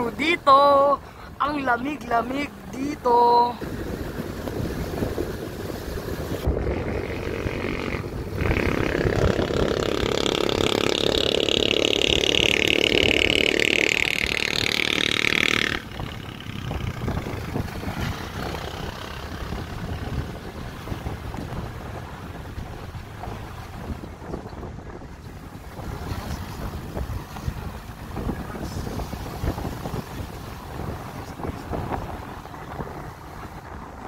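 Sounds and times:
car wind and road noise: 0.0s - 34.0s.

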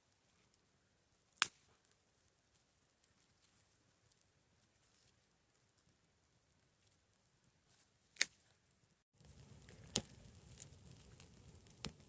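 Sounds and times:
campfire crackling and popping: 0.1s - 7.3s, 9.2s - 12.0s
rush of flames: 9.2s - 12.0s.

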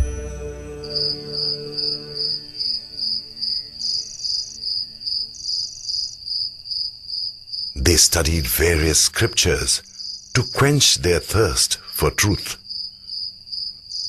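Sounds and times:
low sustained music notes: 0.0s - 5.8s
cricket chirping: 0.8s - 10.8s, 12.6s - 14.0s.

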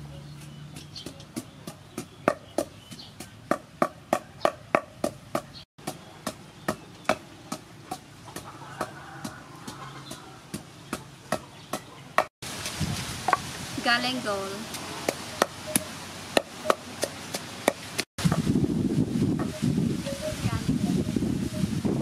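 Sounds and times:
pestle pounding in wooden mortar: 0.4s - 12.3s, 15.0s - 18.5s.

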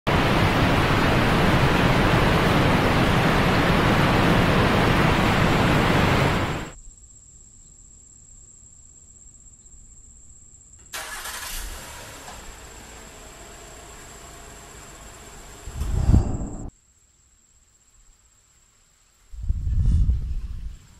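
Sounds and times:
waterfall rushing: 0.1s - 6.8s.

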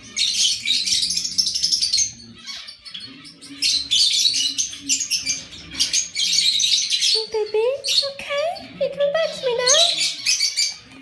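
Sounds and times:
birds chirping and chattering: 0.0s - 11.0s.

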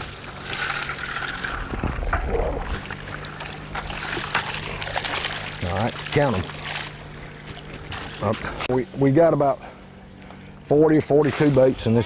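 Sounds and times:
water pouring and splashing: 0.0s - 8.7s
steady low hum: 0.0s - 12.0s.

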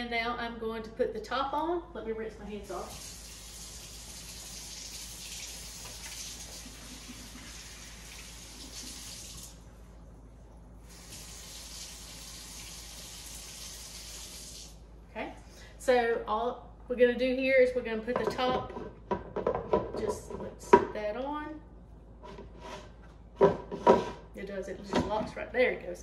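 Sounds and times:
faucet running into sink: 2.9s - 9.6s, 10.9s - 14.8s.

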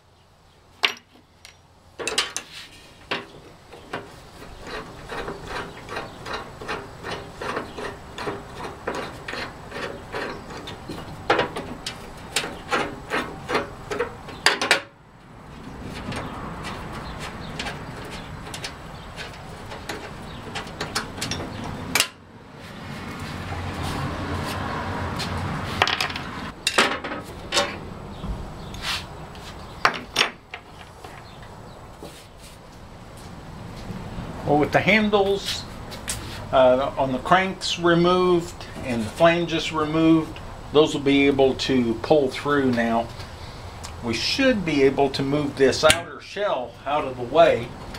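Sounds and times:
sharp metal knocks: 0.8s - 2.5s, 3.9s - 15.0s, 16.0s - 22.2s
metal flange scraping on shaft: 4.1s - 11.0s.

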